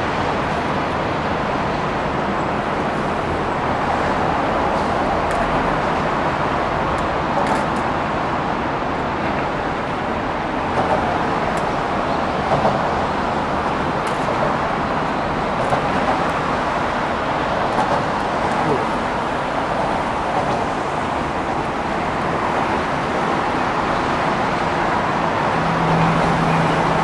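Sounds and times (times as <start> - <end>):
city traffic rush: 0.0 - 27.0.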